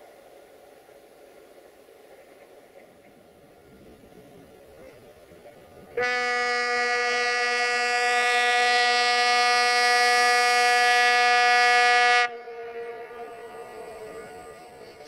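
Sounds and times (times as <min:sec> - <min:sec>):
air horn blast: 0:06.0 - 0:14.1.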